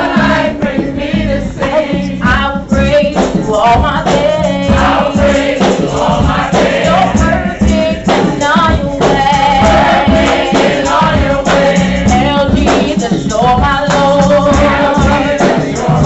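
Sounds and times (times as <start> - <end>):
children's choir singing: 0.0 - 2.2, 4.4 - 12.4, 14.4 - 16.0
accompaniment with steady beat: 0.0 - 16.0.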